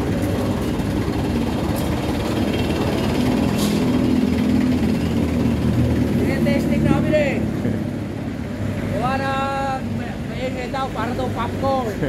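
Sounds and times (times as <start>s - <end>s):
vehicle engine running: 0.0s - 9.0s.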